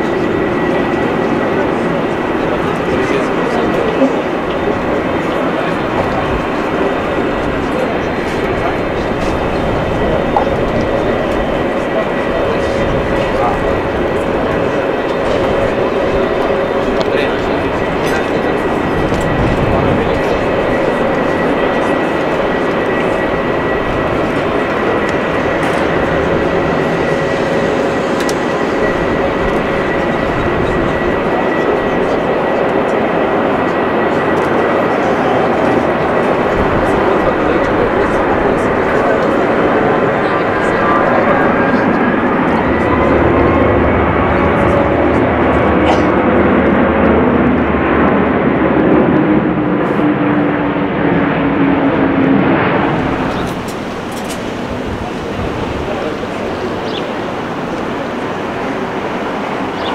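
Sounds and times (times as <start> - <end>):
jet plane rumble with whine: 0.0 - 59.9.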